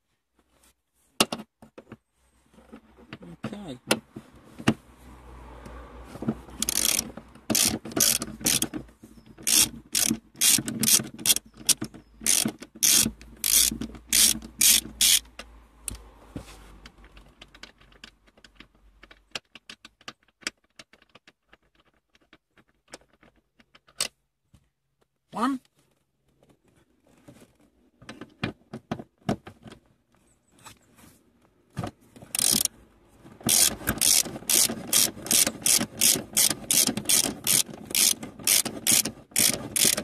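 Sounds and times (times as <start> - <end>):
ratchet wrench clicking: 6.6 - 8.7, 9.4 - 16.0, 32.3 - 32.7, 33.5 - 40.0.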